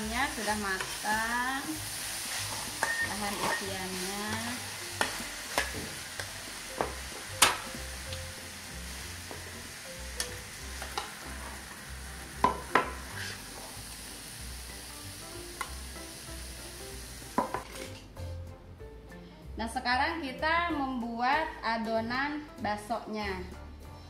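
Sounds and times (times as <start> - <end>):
chicken sizzling in a wok: 0.0 - 18.3
metal spatula scraping a wok: 13.0 - 13.5.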